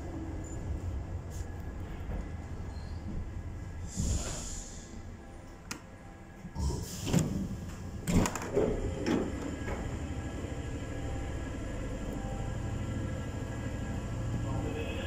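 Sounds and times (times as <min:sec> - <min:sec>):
low rumble of stopped train: 0:00.0 - 0:15.0
train doors clunking open: 0:05.4 - 0:10.3.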